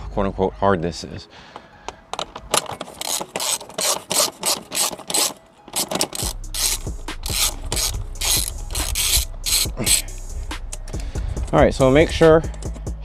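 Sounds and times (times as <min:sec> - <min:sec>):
ratchet pawl clicks: 0:02.2 - 0:11.6, 0:12.4 - 0:12.9.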